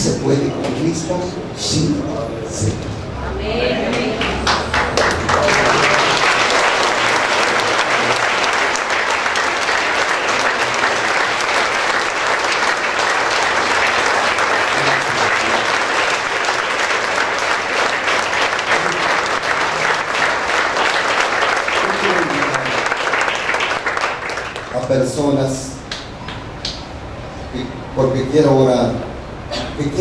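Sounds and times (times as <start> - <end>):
crowd applauding: 3.9 - 25.1.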